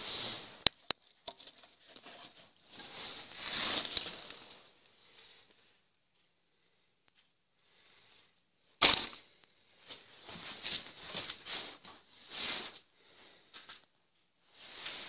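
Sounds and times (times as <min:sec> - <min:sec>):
handling rustles and scrapes: 0:00.0 - 0:04.7, 0:09.8 - 0:12.8, 0:14.5 - 0:15.0.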